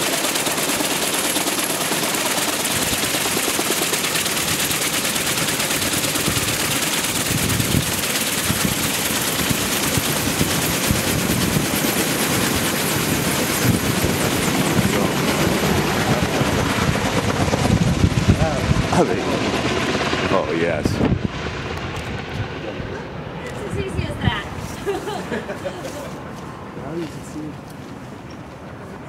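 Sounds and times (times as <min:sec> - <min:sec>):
helicopter rotors chopping: 0:00.0 - 0:26.4.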